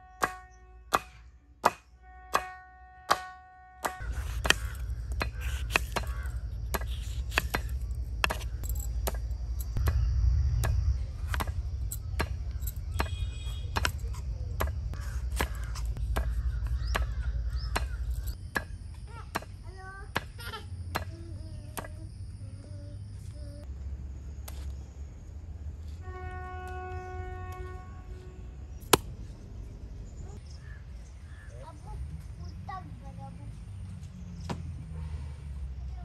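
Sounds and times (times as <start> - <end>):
knife chopping on wooden board: 3.1 - 9.2, 14.6 - 18.0
birds chirping: 3.8 - 34.9
low rumble: 4.2 - 18.9.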